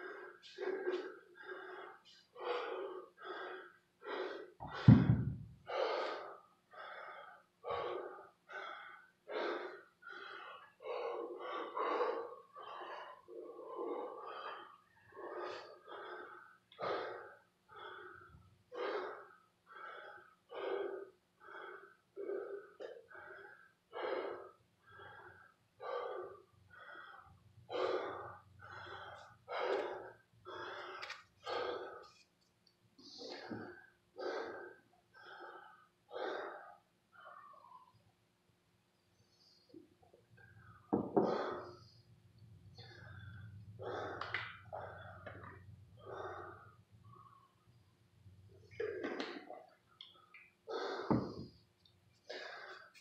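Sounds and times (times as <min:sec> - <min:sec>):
man breathing hard: 0:00.0 - 0:32.2, 0:33.0 - 0:37.7, 0:39.3 - 0:47.7, 0:48.6 - 0:51.6, 0:52.2 - 0:53.0
kettlebell thud on floor: 0:04.6 - 0:05.5.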